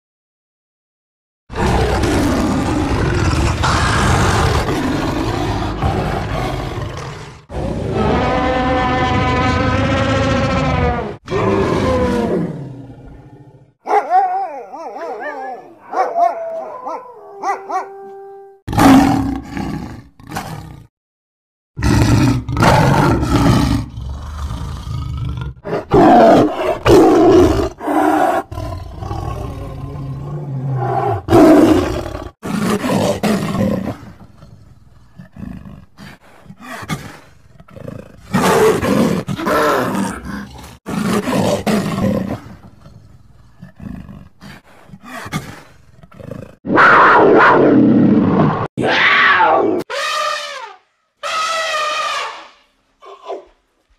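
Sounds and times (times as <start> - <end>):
big cat roars and growls: 1.5 - 13.8, 18.7 - 20.9, 21.8 - 49.9
animal trumpet call: 8.1 - 11.0, 49.9 - 52.6.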